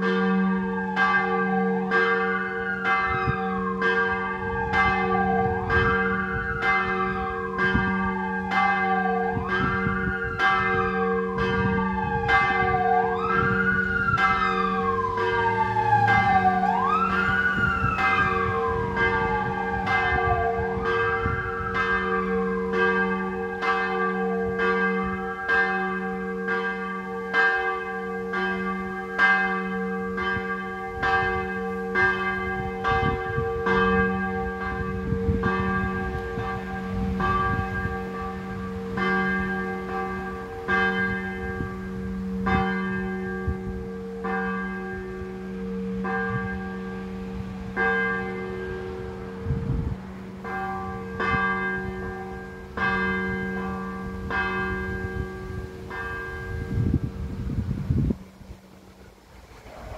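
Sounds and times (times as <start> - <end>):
church bells pealing: 0.0 - 58.7
siren wailing: 0.6 - 1.1, 2.5 - 23.7.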